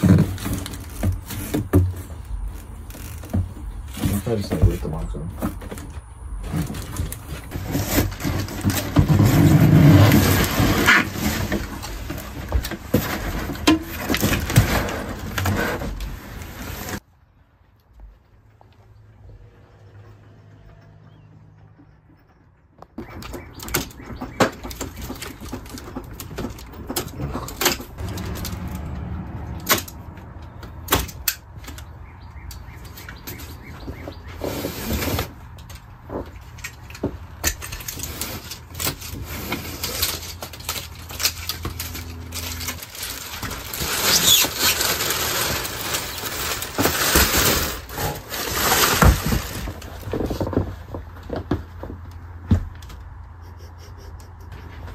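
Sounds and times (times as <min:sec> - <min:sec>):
plastic wrap rustling: 0:00.0 - 0:04.6, 0:37.8 - 0:51.5
styrofoam and cardboard knocks: 0:46.6 - 0:52.8.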